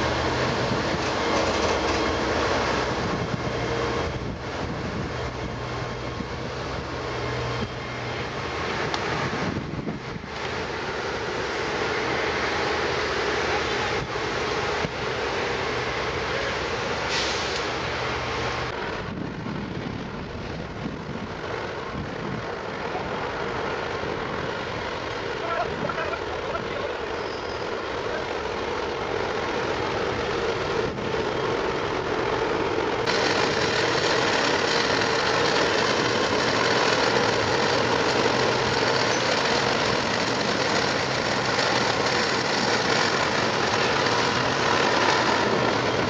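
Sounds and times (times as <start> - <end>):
diesel engine humming: 0.0 - 46.0
hiss: 10.4 - 18.7.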